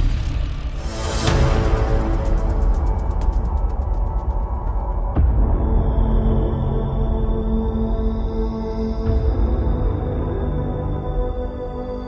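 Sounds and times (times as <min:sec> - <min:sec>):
dark drone music: 0:00.0 - 0:12.0.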